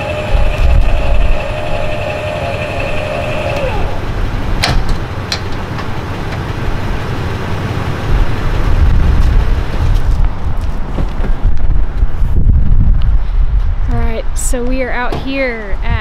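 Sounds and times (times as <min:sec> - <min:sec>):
whine sliding down in pitch: 0:00.0 - 0:04.5
vehicle engine rumbling: 0:00.0 - 0:16.0.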